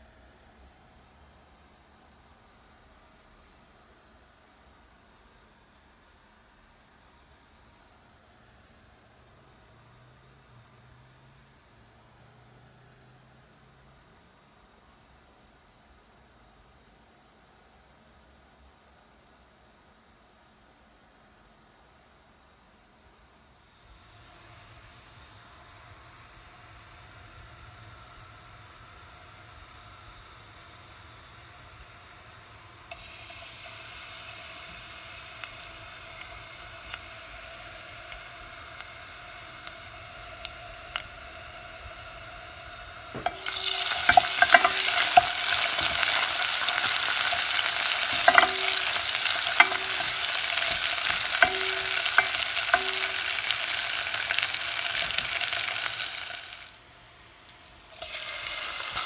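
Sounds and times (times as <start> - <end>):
oil sizzling in a pot: 23.6 - 59.0
spoon clinking against pot: 43.2 - 53.8.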